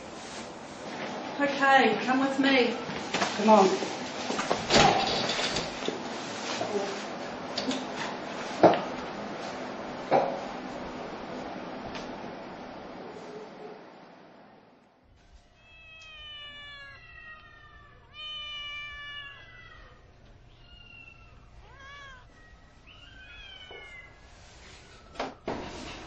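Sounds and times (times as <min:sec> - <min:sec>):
kitten meowing: 0:15.6 - 0:24.2.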